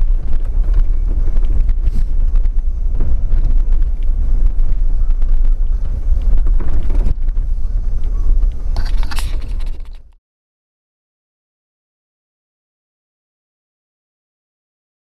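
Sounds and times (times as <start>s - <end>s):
knocks from rough road: 0.0s - 8.5s
vehicle engine rumbling: 0.0s - 10.2s
wind buffeting microphone: 0.0s - 10.2s.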